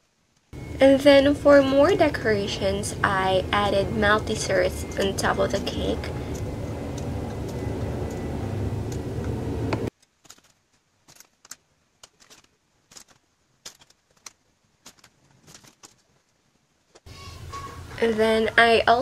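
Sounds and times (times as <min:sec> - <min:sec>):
steady low rumble: 0:00.6 - 0:09.9.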